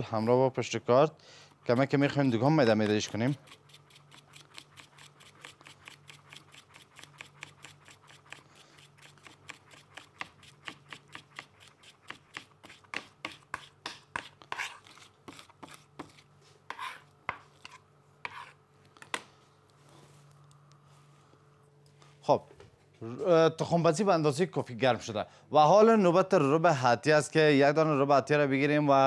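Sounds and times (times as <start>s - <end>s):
knife chopping on cutting board: 7.0s - 14.7s.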